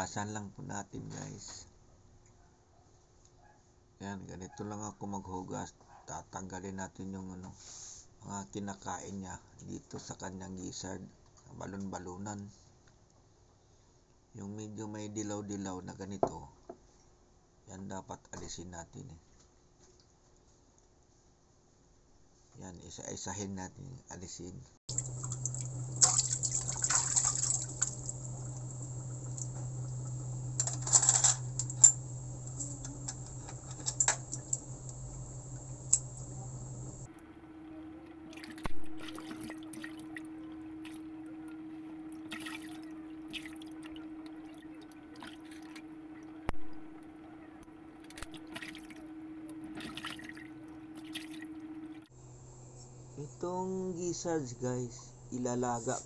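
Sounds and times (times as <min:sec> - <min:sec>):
water splashing and dripping: 0:24.9 - 0:30.8, 0:38.2 - 0:41.1, 0:42.2 - 0:47.0, 0:48.0 - 0:52.1
steady low hum: 0:24.9 - 0:56.0.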